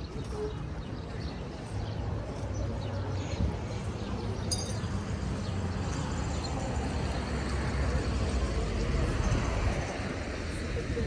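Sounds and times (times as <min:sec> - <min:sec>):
road traffic rumble: 0:00.0 - 0:11.0
sharp clink: 0:04.5 - 0:04.9.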